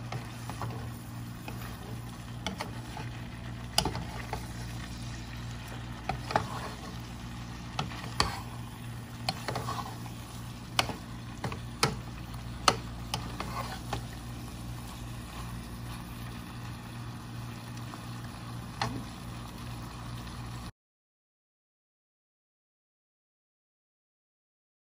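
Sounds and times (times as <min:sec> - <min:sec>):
steady low hum: 0:00.0 - 0:20.3
faint sizzle: 0:00.0 - 0:20.7
spatula knocking metal pot: 0:10.7 - 0:13.4.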